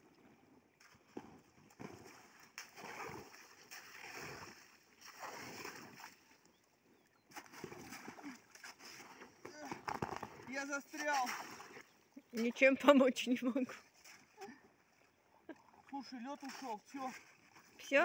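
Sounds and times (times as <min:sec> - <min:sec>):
paddle sloshing through slush: 0:00.9 - 0:06.4, 0:07.3 - 0:12.0, 0:13.8 - 0:17.9.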